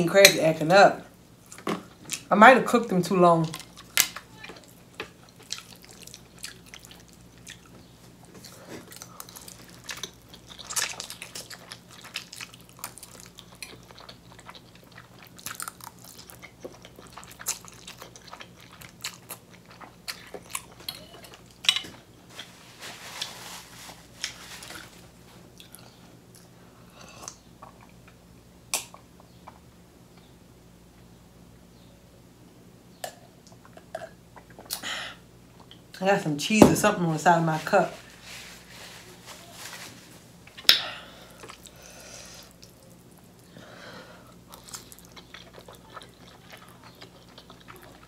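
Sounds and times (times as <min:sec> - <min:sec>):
wet chewing and slurping: 0:04.6 - 0:21.6, 0:44.4 - 0:48.0.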